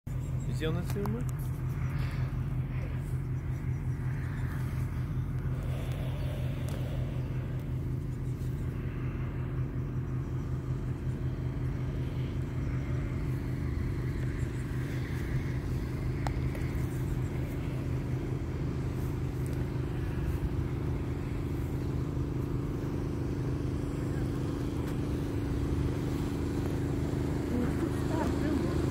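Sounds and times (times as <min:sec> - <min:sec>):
small engine idling: 0:00.1 - 0:28.9.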